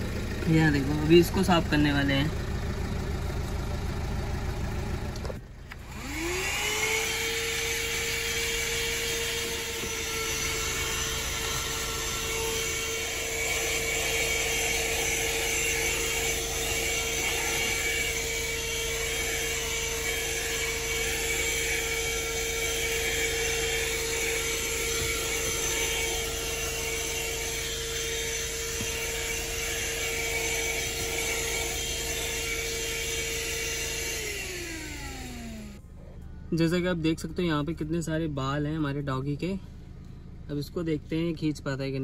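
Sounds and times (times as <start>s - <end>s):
vacuum cleaner whining: 5.7s - 35.8s.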